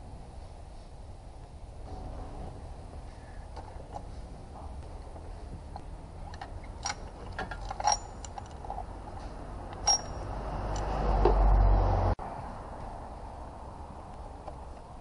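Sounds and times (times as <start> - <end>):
rustling rumble: 0.0 - 15.0
metallic clicks and clinks: 6.3 - 10.9.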